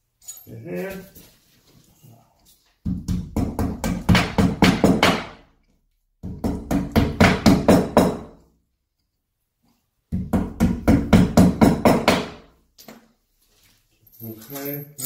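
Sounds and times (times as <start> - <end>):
hammer tapping wall anchors: 2.8 - 5.5, 6.2 - 8.4, 10.1 - 12.5.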